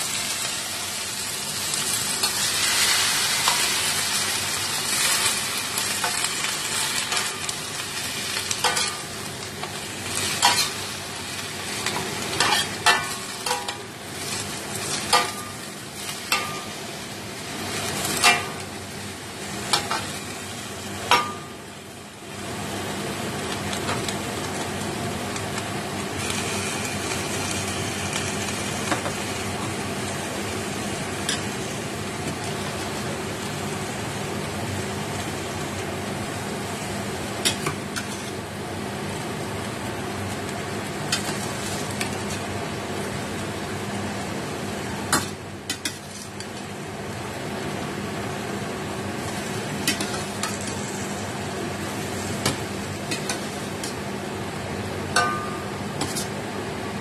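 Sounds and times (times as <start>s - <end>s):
cabbage sizzling in a wok: 0.0s - 57.0s
metal spatula scraping a pan: 11.8s - 15.5s.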